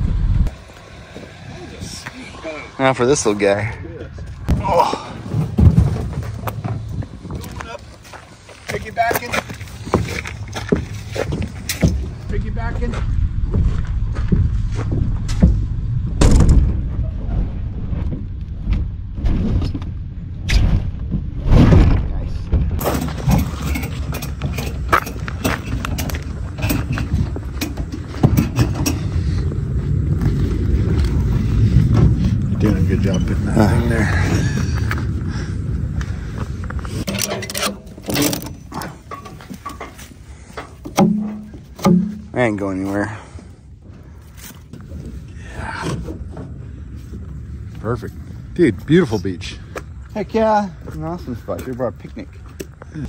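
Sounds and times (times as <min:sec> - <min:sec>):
wind rumble on microphone: 0:00.0 - 0:08.5, 0:09.4 - 0:37.2, 0:43.6 - 0:51.3
boat hull knocking and scraping: 0:37.0 - 0:42.5.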